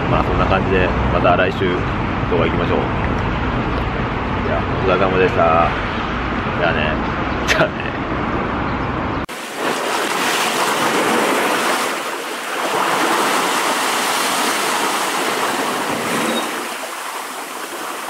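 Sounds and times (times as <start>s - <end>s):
sea water washing and lapping: 9.3s - 18.0s.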